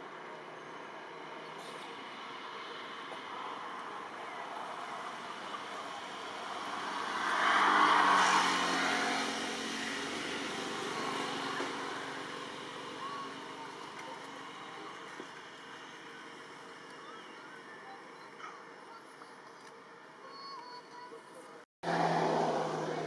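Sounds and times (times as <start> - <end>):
passing engine: 1.8 - 16.8, 21.8 - 23.0.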